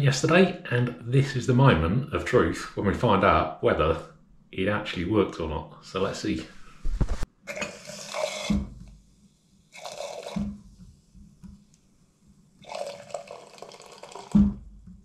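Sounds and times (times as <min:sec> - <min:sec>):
cider hissing from tap: 0:07.5 - 0:09.0, 0:09.7 - 0:11.9, 0:12.6 - 0:14.6.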